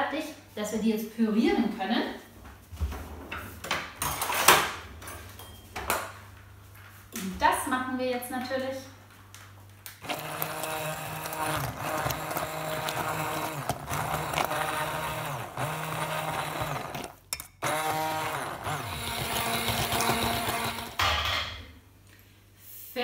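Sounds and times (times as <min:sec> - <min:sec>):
stick blender running: 0:09.9 - 0:21.0.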